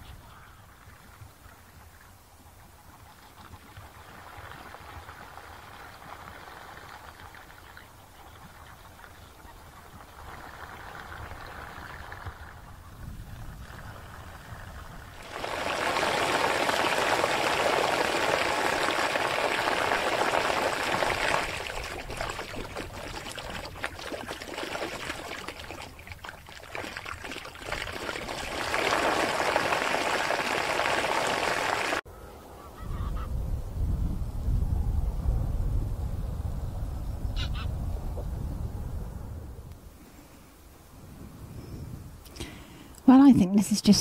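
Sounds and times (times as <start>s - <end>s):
low rumble: 33.3s - 39.8s.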